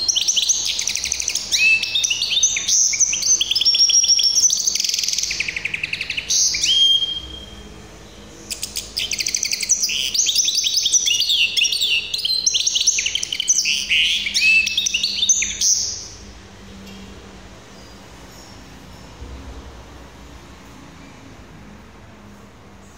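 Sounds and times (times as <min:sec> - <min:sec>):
finch singing trills: 0:00.0 - 0:16.3.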